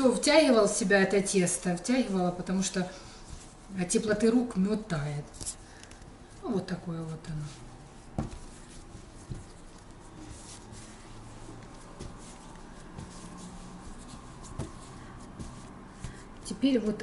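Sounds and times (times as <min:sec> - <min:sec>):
hands kneading dough: 0:00.0 - 0:17.0.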